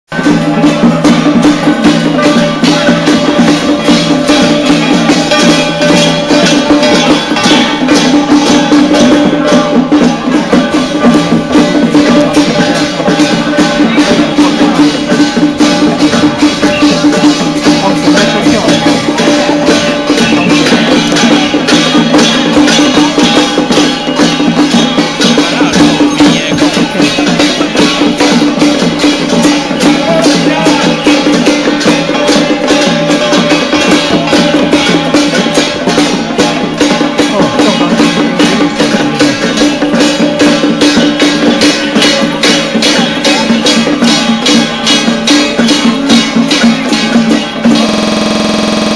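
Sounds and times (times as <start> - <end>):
drums and clashing percussion: 0.1 - 48.9
steady held tone: 44.3 - 48.9.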